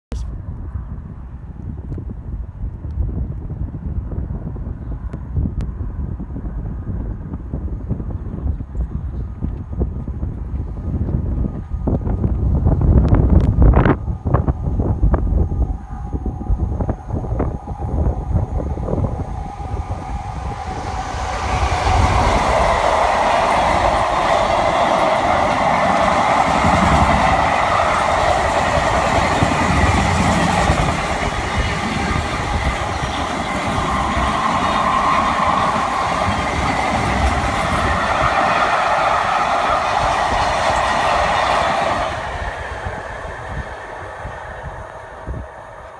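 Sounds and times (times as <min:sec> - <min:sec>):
steel wheels rushing on rail: 0:03.8 - 0:45.9
freight train rolling past: 0:09.8 - 0:45.9.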